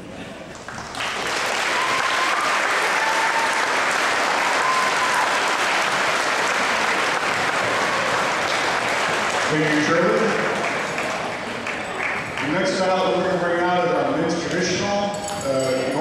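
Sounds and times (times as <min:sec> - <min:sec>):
audience applauding: 0:00.5 - 0:12.8.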